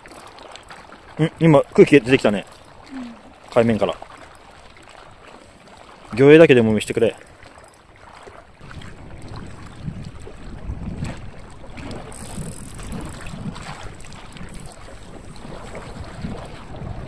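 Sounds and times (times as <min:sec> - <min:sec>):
sea water lapping: 0:00.0 - 0:17.0
wind buffeting microphone: 0:08.6 - 0:17.0.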